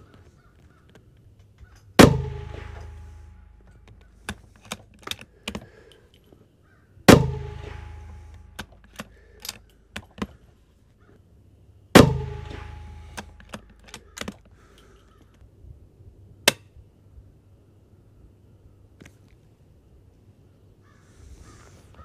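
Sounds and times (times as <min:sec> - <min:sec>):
sharp clicks and knocks: 0:00.8 - 0:06.4, 0:07.1 - 0:10.4, 0:12.0 - 0:15.4
rifle shots with echo: 0:02.0 - 0:04.6, 0:07.1 - 0:09.3, 0:12.0 - 0:14.2.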